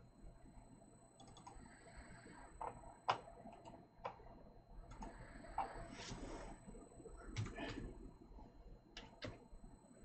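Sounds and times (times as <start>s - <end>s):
computer mouse clicking: 1.2s - 1.6s, 4.8s - 5.8s, 9.0s - 9.4s.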